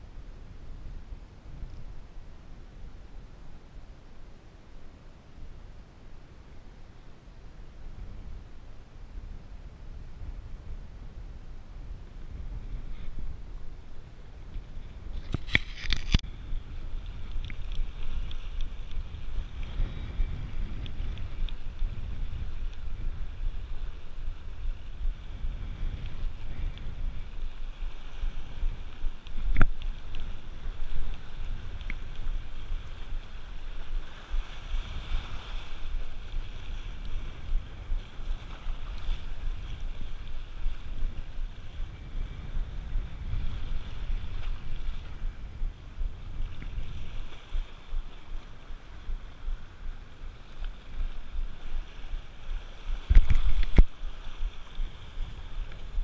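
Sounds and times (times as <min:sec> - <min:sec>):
wind buffeting microphone: 0:00.0 - 0:56.0
sea surf washing on rocks: 0:12.0 - 0:56.0.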